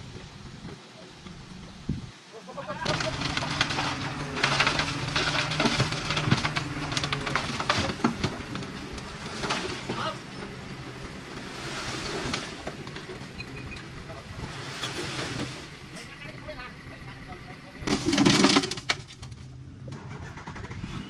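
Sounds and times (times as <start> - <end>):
rubble crunching and clattering: 2.8 - 16.3, 17.8 - 19.6
heavy machinery diesel engine: 2.8 - 21.0.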